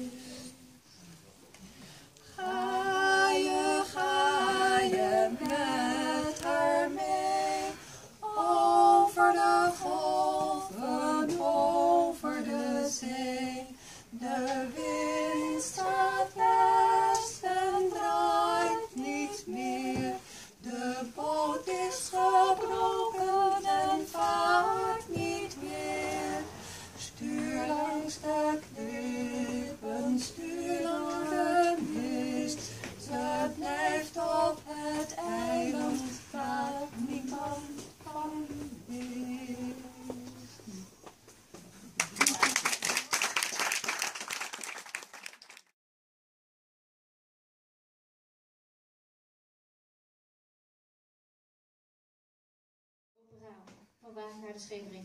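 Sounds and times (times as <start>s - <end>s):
two women singing unaccompanied: 0.0s - 0.9s, 1.8s - 41.6s.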